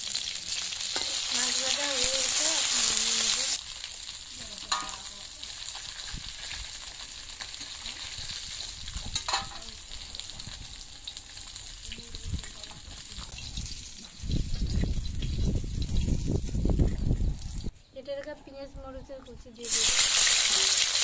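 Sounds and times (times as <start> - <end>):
fish sizzling in hot oil: 0.0 - 16.8, 19.6 - 21.0
metal spatula clinking on pan: 4.7 - 5.1, 9.2 - 9.6.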